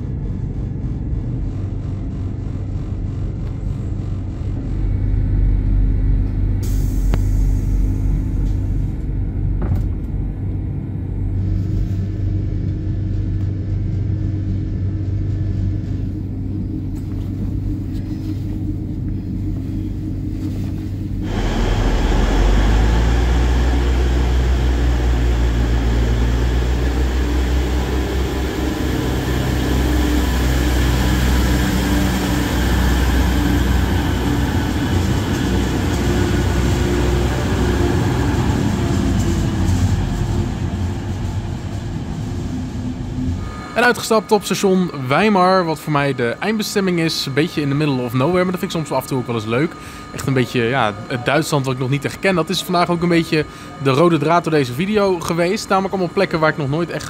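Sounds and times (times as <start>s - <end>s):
diesel train engine drone: 0.0s - 57.0s
train rushing noise: 6.4s - 56.9s.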